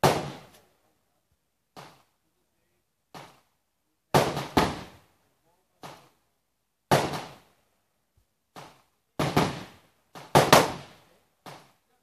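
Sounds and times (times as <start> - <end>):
faint distant gunshots: 0.0 - 0.6, 4.1 - 5.1, 6.9 - 7.6, 8.5 - 11.8
gunshots: 0.0 - 0.6, 4.1 - 5.1, 6.9 - 7.5, 8.5 - 11.8.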